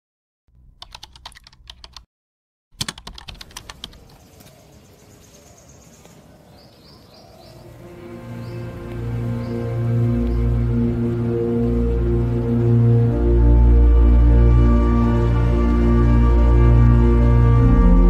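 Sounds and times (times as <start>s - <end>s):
computer keyboard typing: 0.7s - 2.1s, 2.8s - 4.2s
music: 7.7s - 18.0s.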